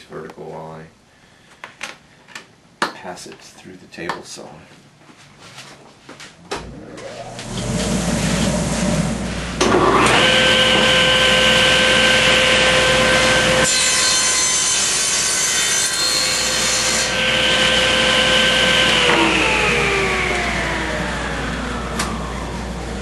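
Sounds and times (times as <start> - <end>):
table saw whining: 6.6 - 23.0
saw blade cutting wood: 9.6 - 20.1.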